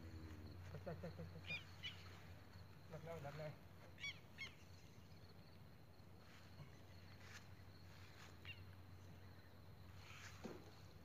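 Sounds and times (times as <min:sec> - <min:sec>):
faint bird calls: 0:00.1 - 0:02.6, 0:03.4 - 0:05.3, 0:06.2 - 0:10.5.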